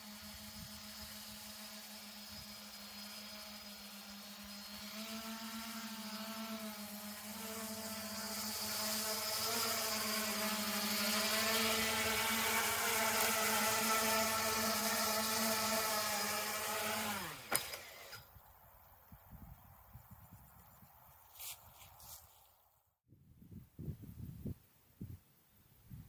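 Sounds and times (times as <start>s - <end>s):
drone propellers buzzing: 0.0s - 18.3s.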